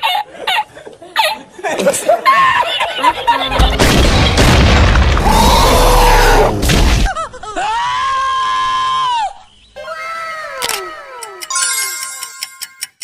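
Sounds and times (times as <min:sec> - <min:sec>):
laughter: 0:00.0 - 0:03.9, 0:07.1 - 0:07.8
loud boom with deep rumble: 0:03.6 - 0:07.2
long drawn-out scream: 0:05.2 - 0:06.6, 0:07.6 - 0:11.4.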